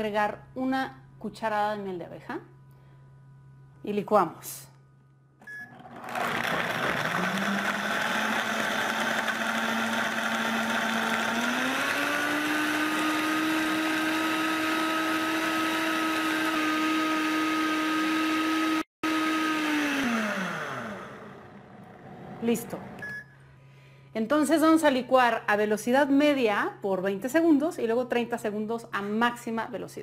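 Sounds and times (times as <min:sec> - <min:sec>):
blender motor whining: 0:05.6 - 0:22.5.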